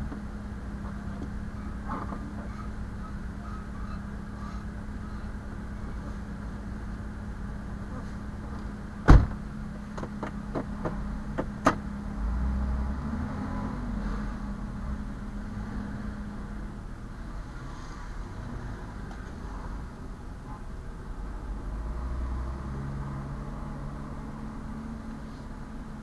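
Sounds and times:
vehicle idling: 0.0s - 26.0s
car door shutting: 8.6s - 11.8s.

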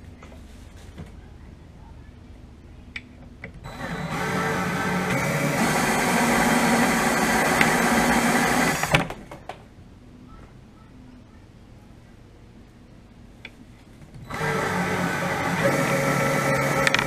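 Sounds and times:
cordless drill whirring: 3.6s - 9.2s, 14.2s - 17.0s.

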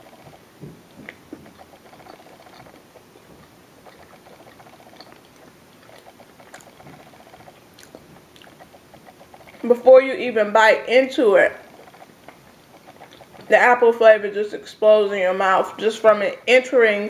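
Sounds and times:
person chewing food: 0.0s - 9.7s, 11.6s - 13.5s.

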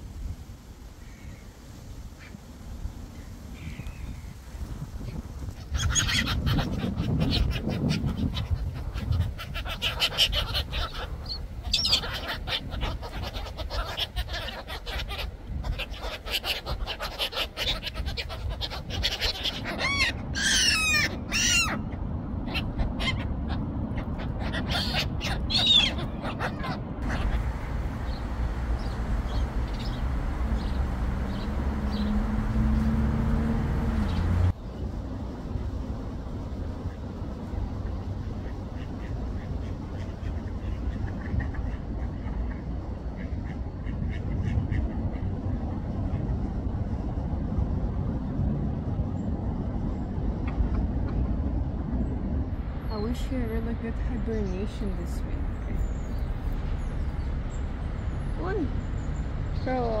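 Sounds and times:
city traffic rumble: 0.0s - 60.0s
flock of gulls calling: 5.5s - 34.5s
vehicle engine hum: 19.4s - 60.0s.

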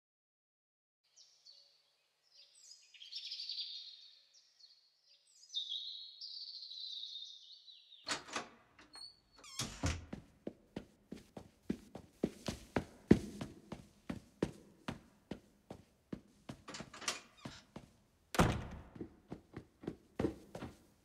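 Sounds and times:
child running on stairs: 10.1s - 21.0s.

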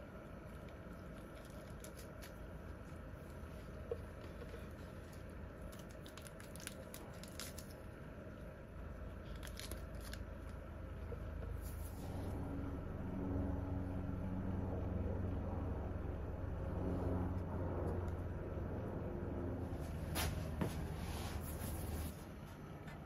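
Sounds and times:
steady low hum: 0.0s - 23.0s
mushroom tearing crackles: 0.2s - 12.2s.

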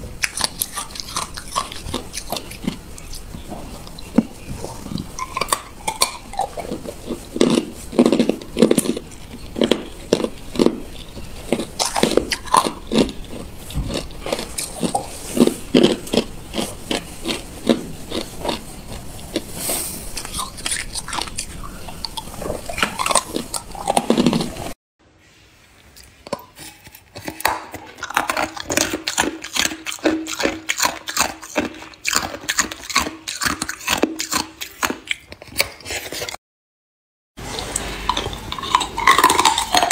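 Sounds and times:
ice cubes crunching: 0.2s - 3.2s, 4.9s - 24.7s, 37.7s - 39.9s.

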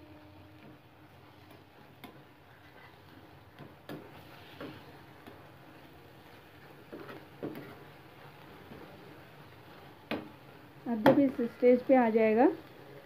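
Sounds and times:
spatula scraping a frying pan: 2.4s - 9.9s.

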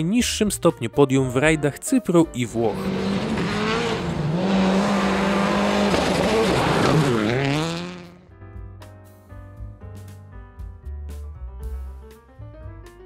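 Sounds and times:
soft piano music: 0.0s - 2.9s, 8.2s - 13.0s
rally car engine revving: 2.5s - 8.2s.

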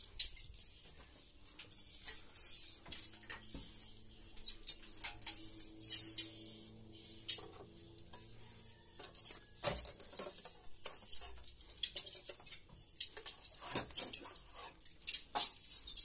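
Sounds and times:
swiftlets twittering: 0.3s - 9.4s.

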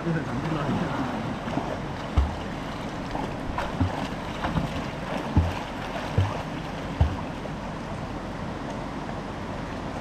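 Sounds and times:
water: 0.0s - 10.0s
low thumps: 2.1s - 7.3s.

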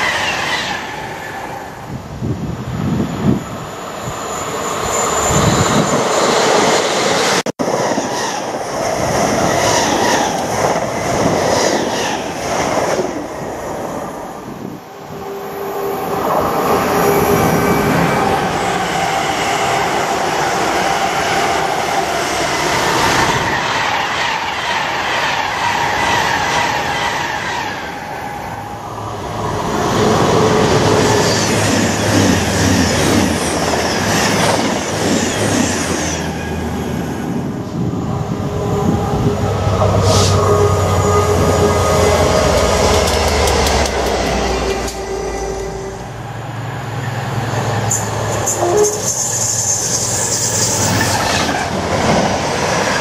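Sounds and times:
diesel locomotive engine drone: 0.0s - 53.0s
electric train passing: 0.0s - 53.0s
train wheels clattering on rail joints: 42.4s - 45.0s.

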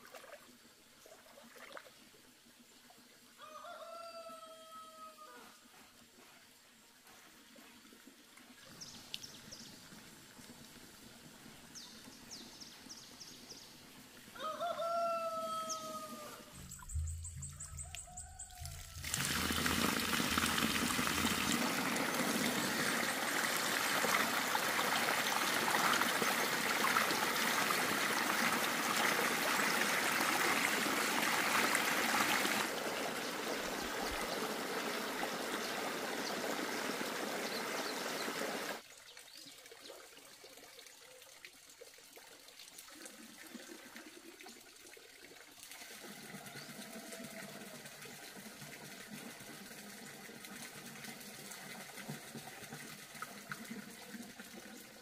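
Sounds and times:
water running and pouring: 16.5s - 38.8s.

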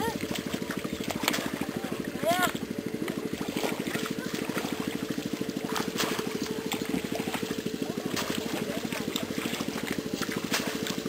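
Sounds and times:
small engine running: 0.0s - 11.0s
splashes: 0.0s - 11.0s.

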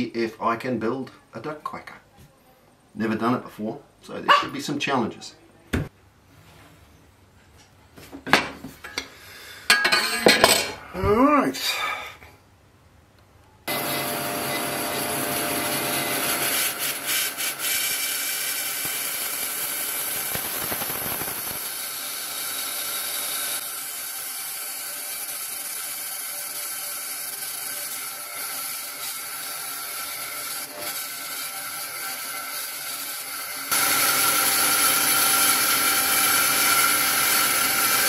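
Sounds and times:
power saw cutting wood: 13.7s - 38.0s.

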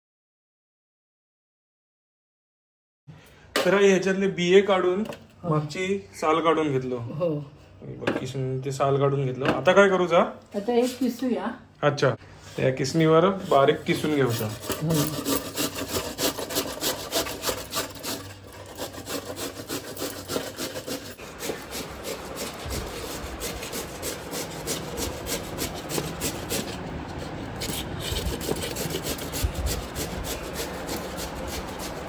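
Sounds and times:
cucumber grated on metal grater: 13.4s - 32.0s.

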